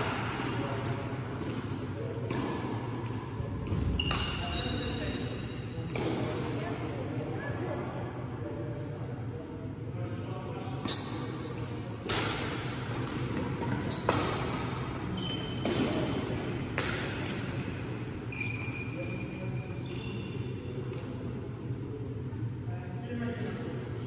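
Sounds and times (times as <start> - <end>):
shoes squeaking on court: 0.0 - 2.4, 3.3 - 5.6, 10.8 - 15.7, 18.3 - 20.4
rackets striking shuttlecock: 12.0 - 14.8, 16.7 - 17.4.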